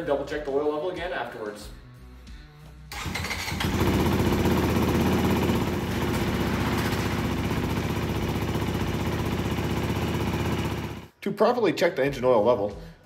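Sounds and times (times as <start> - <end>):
motorcycle engine starting and idling: 2.9 - 11.1.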